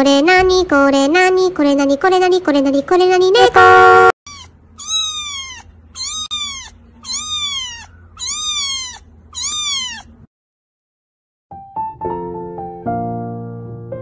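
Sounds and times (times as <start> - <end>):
kitten meowing: 4.3 - 10.3.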